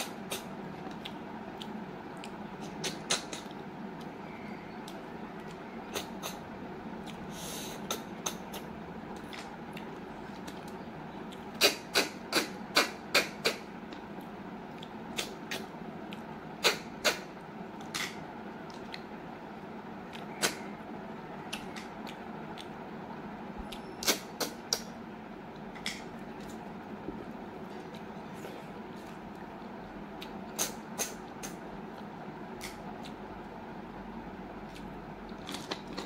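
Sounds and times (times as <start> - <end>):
mouth clicks and smacks eating: 0.0 - 4.2, 4.8 - 19.1, 21.4 - 22.9, 23.6 - 26.7, 27.3 - 33.6
low background hum: 0.0 - 36.0.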